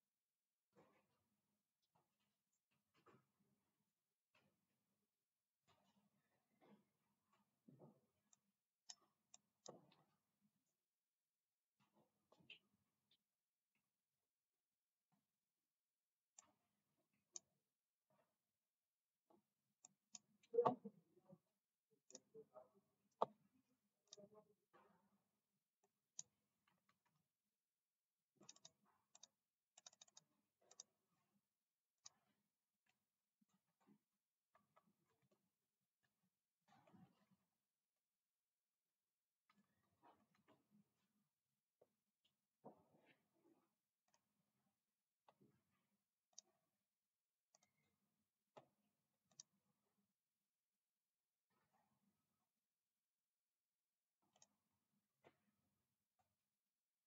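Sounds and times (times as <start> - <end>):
computer mouse clicks: 22.0 - 22.4, 26.1 - 26.3, 28.4 - 31.0, 46.3 - 46.6, 49.3 - 49.5, 54.3 - 54.6.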